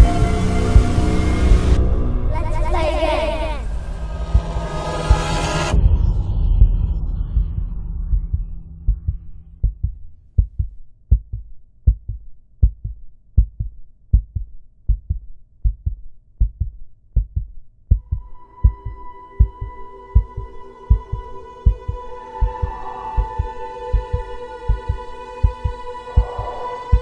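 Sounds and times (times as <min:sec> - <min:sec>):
high droning tone: 0:00.0 - 0:10.2, 0:18.2 - 0:27.0
low rumble: 0:00.0 - 0:14.4, 0:15.7 - 0:27.0
heartbeat thumps: 0:03.7 - 0:27.0.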